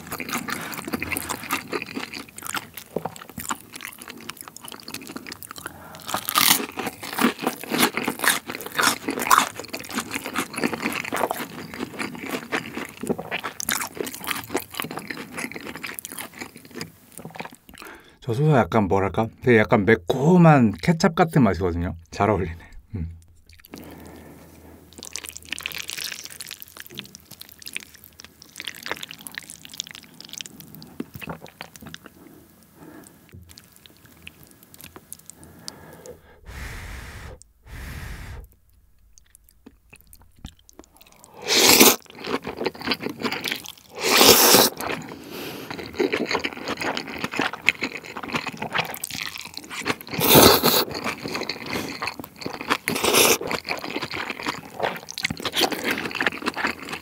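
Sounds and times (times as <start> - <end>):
close chewing of food: 0.0 - 18.2, 23.3 - 57.0
slurping noodles: 35.8 - 42.0, 43.9 - 44.8, 50.1 - 52.0.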